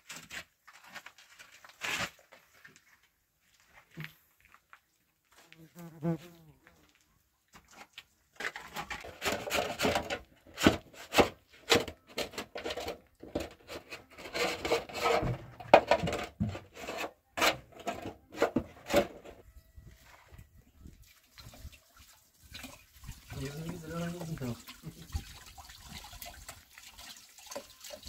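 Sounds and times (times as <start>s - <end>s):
rubbing and scraping strokes: 12.6s - 15.4s, 16.1s - 19.1s.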